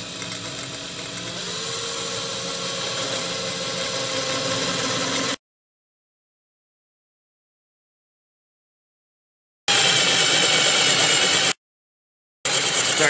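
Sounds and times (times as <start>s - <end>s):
drill bit grinding into glass: 0.0s - 5.4s
drill motor whine: 0.0s - 5.4s, 9.7s - 11.6s, 12.5s - 13.0s.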